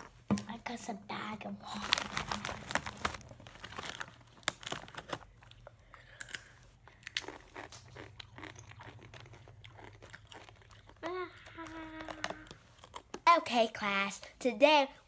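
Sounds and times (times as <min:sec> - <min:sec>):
chips being bitten and chewed: 0:01.7 - 0:11.1.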